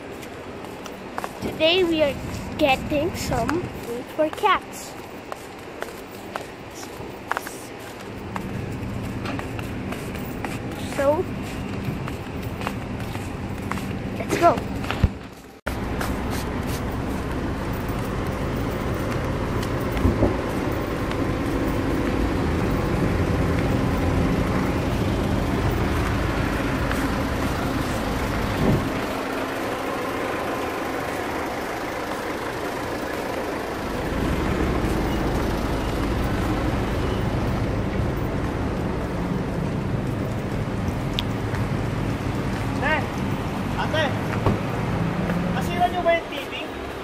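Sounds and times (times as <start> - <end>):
vehicles running on road: 0.0 - 47.0.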